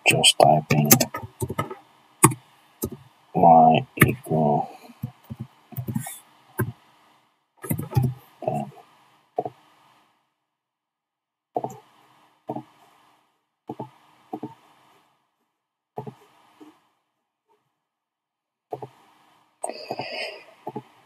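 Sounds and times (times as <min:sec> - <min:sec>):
keyboard taps: 0:00.7 - 0:03.0, 0:04.0 - 0:04.2, 0:05.0 - 0:06.8, 0:07.6 - 0:08.2
mouse clicks: 0:00.7 - 0:03.0.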